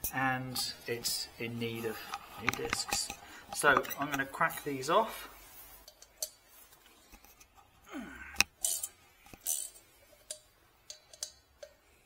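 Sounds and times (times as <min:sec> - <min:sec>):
ratchet metal clicks: 0:08.4 - 0:11.8.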